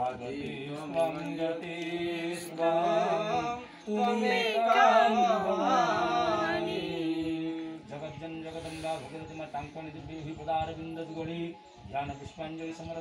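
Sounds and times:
man chanting: 0.0 - 10.1.

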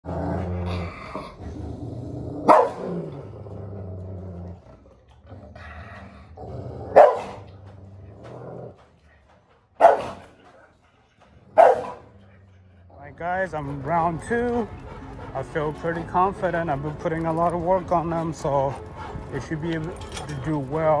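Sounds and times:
dog growling low: 0.0 - 21.0
dog barking sharply: 2.5 - 2.8, 7.0 - 7.4, 9.8 - 10.2, 11.6 - 12.0.

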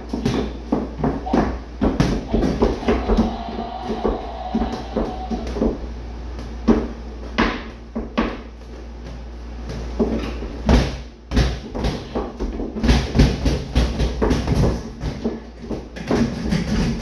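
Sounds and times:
heeled footsteps on wooden floor: 0.0 - 5.9
boxing gloves hitting balls: 0.0 - 17.0.

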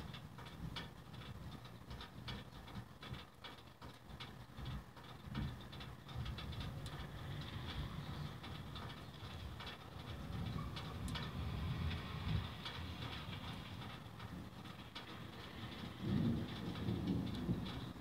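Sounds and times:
rain hiss and ticks: 0.0 - 18.0
rolling thunder rumble: 4.6 - 18.0.

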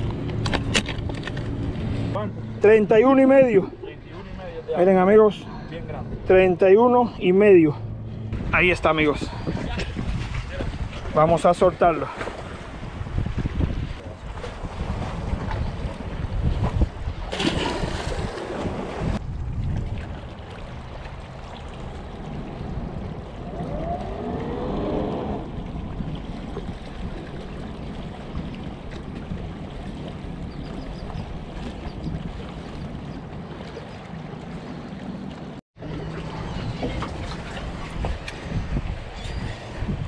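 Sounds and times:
boat engines droning: 0.0 - 9.9, 20.1 - 40.0
wind on microphone: 8.2 - 34.8, 35.9 - 40.0
water lapping against rocks: 12.0 - 40.0
fish splashing into water: 17.2 - 19.2.

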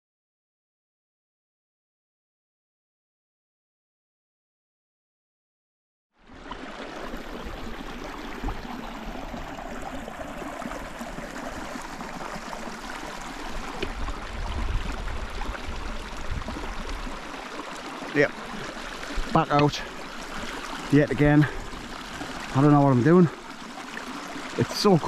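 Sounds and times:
stream running: 6.2 - 25.0
wind rumbling on microphone: 13.4 - 17.3.

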